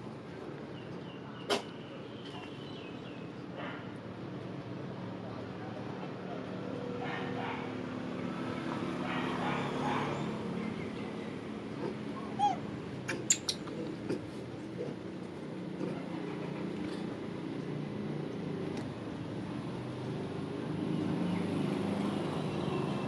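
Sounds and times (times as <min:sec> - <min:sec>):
baby monkey squeak: 0:12.2 - 0:13.7.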